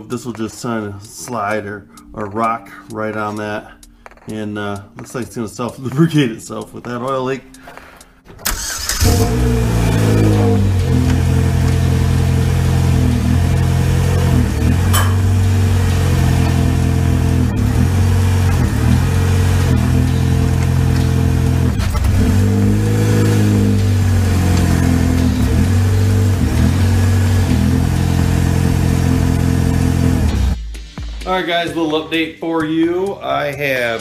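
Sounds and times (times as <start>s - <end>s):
car engine revving: 8.4s - 30.6s.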